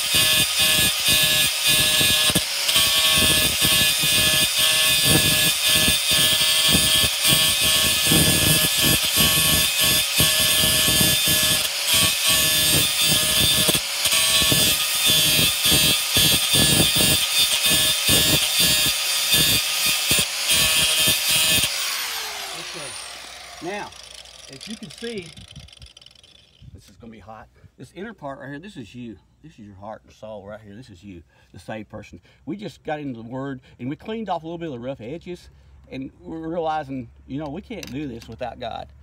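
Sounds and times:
angle grinder grinding steel: 0:00.0 - 0:26.7.

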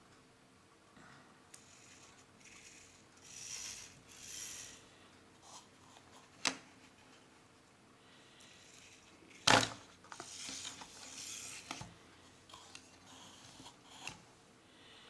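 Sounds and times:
plastic parts rustling scrapes: 0:08.8 - 0:11.9.

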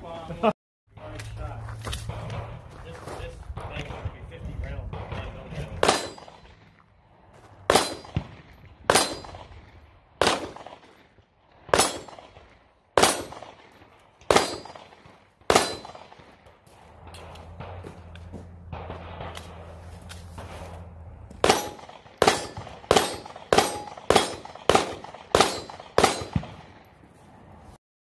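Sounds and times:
pistol shots: 0:03.6 - 0:06.8, 0:07.7 - 0:20.6, 0:21.3 - 0:27.0
steel targets clanging: 0:05.8 - 0:06.5, 0:07.7 - 0:08.2, 0:08.9 - 0:09.4, 0:14.3 - 0:14.8, 0:15.5 - 0:16.0, 0:21.4 - 0:24.8.

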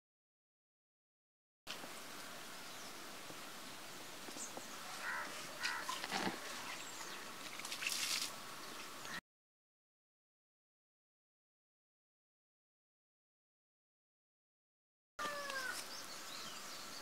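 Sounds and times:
outdoor background hiss: 0:01.7 - 0:09.2, 0:15.2 - 0:17.0
scratchy rustling noises: 0:04.3 - 0:08.4.

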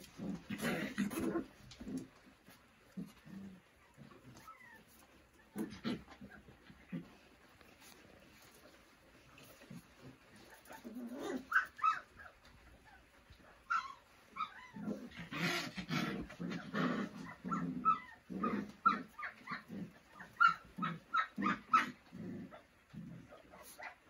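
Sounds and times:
puppies growling: 0:00.0 - 0:24.0
puppies whining and yipping: 0:03.8 - 0:06.6, 0:10.3 - 0:15.7, 0:17.0 - 0:22.1.

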